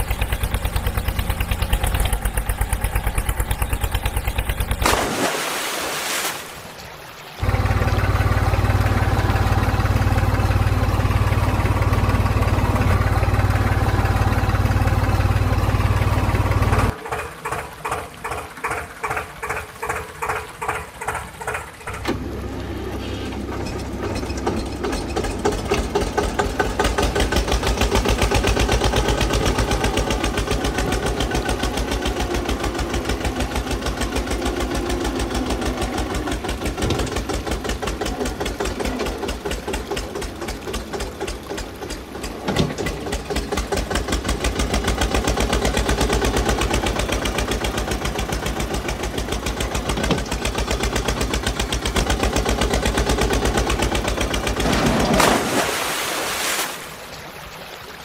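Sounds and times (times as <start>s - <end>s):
diesel tractor engine running: 0.0s - 5.0s, 7.0s - 55.6s
sharp engine knocks: 36.5s - 45.0s.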